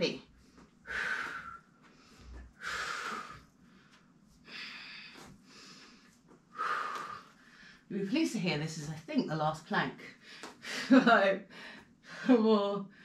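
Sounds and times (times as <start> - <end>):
woman breathing hard: 0.4 - 7.9.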